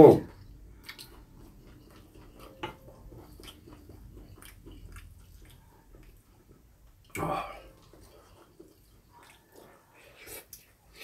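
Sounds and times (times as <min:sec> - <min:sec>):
soft chewing: 0:00.3 - 0:11.0.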